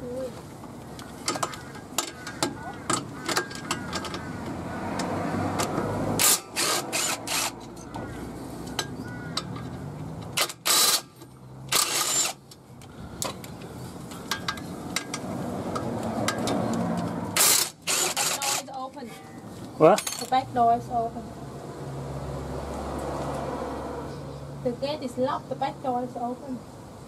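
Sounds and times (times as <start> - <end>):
short rasping bursts: 17.4 - 18.7.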